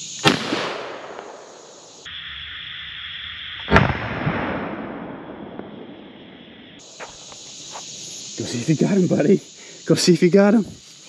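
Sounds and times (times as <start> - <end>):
insect buzz: 0.0 - 11.0
shotgun shot echoing: 0.2 - 1.6, 3.7 - 5.9.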